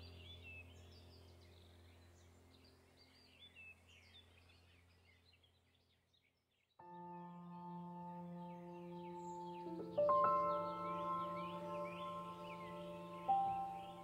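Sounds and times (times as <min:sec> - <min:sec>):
faint bird chirps: 0:00.0 - 0:14.0
droning background music chord: 0:06.8 - 0:14.0.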